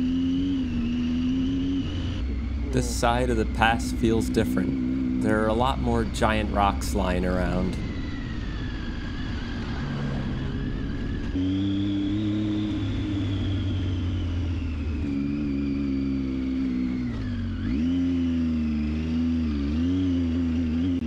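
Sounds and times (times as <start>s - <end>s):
motorcycle engine running: 0.0s - 21.0s.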